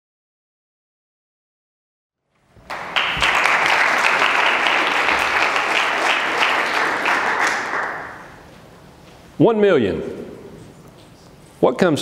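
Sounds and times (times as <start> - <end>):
audience applause: 2.6 - 8.4.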